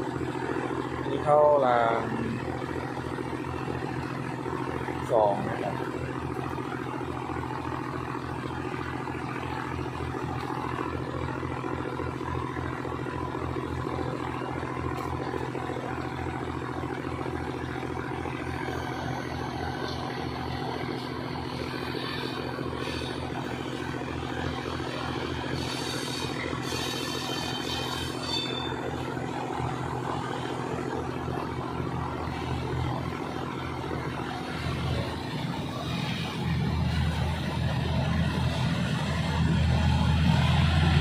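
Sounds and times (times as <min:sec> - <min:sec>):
diesel train engine droning: 0:00.0 - 0:41.0
high squeal: 0:25.5 - 0:29.0.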